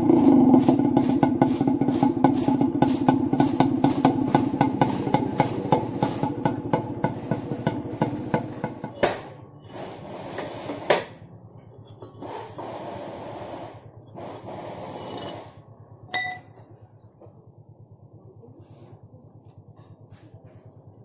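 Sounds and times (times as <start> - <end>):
metal rod scraping in exhaust: 12.2 - 15.6.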